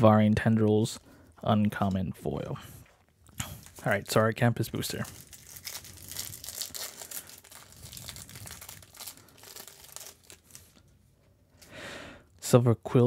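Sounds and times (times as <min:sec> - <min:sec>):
plastic wrapper crinkling and tearing: 0:03.3 - 0:11.0.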